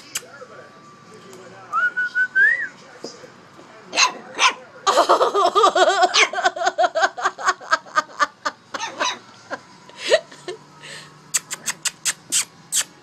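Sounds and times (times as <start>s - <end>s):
person laughing in bursts: 4.9s - 8.9s.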